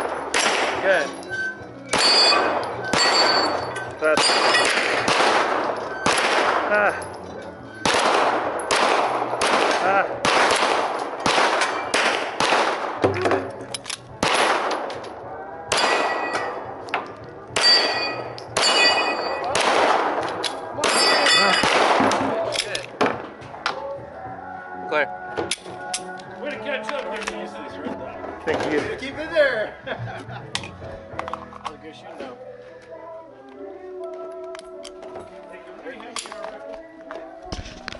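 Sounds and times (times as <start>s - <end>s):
pistol gunshots: 0.0s - 1.1s, 1.9s - 7.0s, 7.8s - 15.0s, 15.7s - 16.7s, 17.5s - 22.4s
steel plates clanging: 0.0s - 5.0s, 20.8s - 21.8s.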